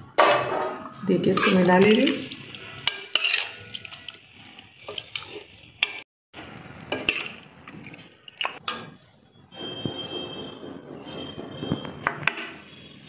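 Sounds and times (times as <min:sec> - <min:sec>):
wet stirring of thick curry: 0:01.2 - 0:06.0, 0:06.8 - 0:09.0.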